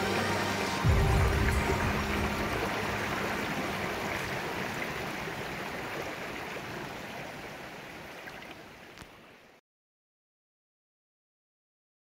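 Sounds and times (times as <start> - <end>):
rushing stream water: 0.0 - 9.6.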